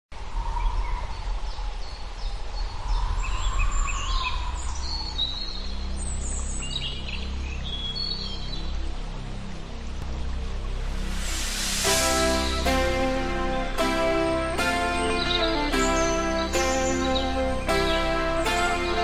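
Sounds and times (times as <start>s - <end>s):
birds chirping and trilling: 0.4s - 10.0s, 11.0s - 19.0s
low rumble: 8.8s - 18.6s.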